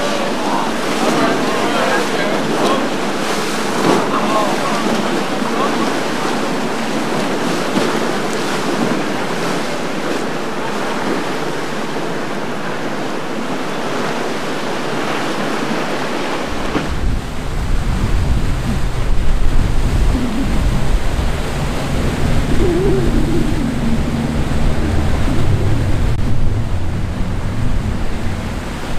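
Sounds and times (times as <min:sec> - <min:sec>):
churning water wash: 0:00.0 - 0:28.9
heavy low rumble: 0:17.1 - 0:28.9.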